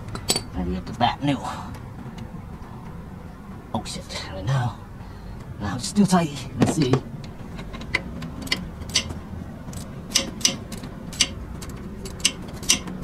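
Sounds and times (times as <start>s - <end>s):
hand ratchet clicking: 7.9s - 13.0s.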